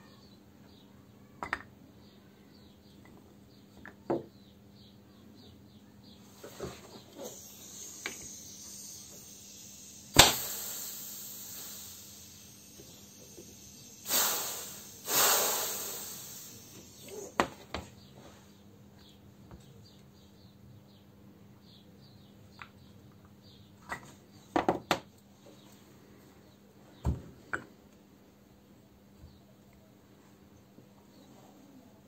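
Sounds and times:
hissing whooshes: 0:07.2 - 0:17.4
sharp knock: 0:10.2 - 0:10.6.

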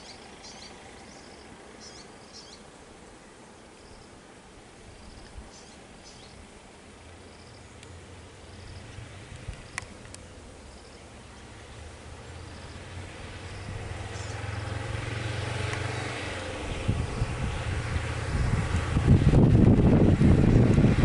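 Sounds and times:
vehicle engines idling: 0:00.0 - 0:21.0
small truck engine approaching: 0:07.0 - 0:21.0.

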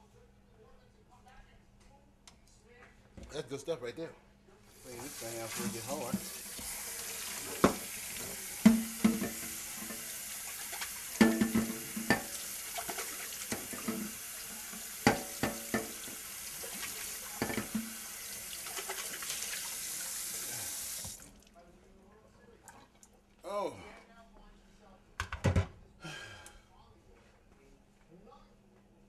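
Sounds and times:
tap running into sink: 0:04.9 - 0:19.1
dishes clinking and knocking: 0:05.1 - 0:06.7, 0:07.3 - 0:14.2, 0:15.0 - 0:16.2, 0:17.3 - 0:18.1, 0:25.2 - 0:25.8.

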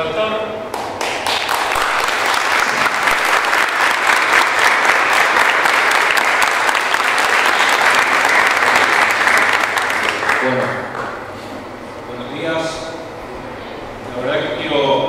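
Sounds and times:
audience applauding: 0:00.7 - 0:11.3.

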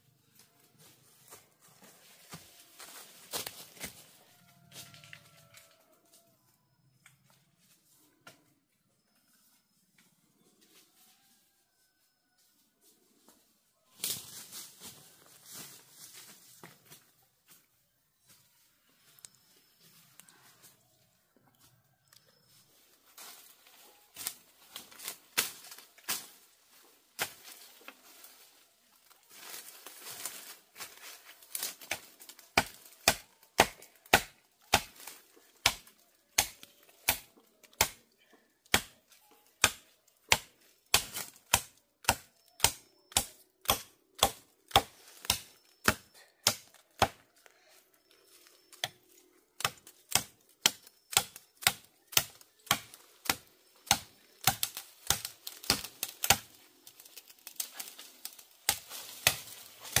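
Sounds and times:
tool striking bamboo: 0:32.6 - 0:38.0, 0:38.7 - 0:39.0, 0:39.6 - 0:47.2, 0:49.6 - 0:56.5, 0:58.7 - 1:00.0.

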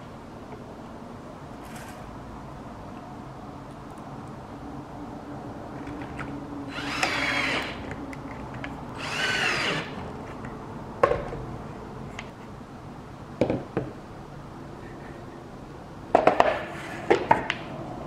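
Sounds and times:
cordless drill motor whine: 0:06.7 - 0:07.9, 0:09.0 - 0:10.0.

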